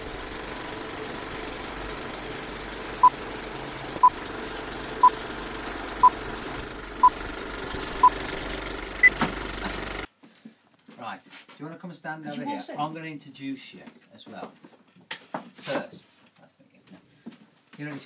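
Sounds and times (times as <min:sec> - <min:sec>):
film projector whirr with crackle: 0:00.0 - 0:10.1.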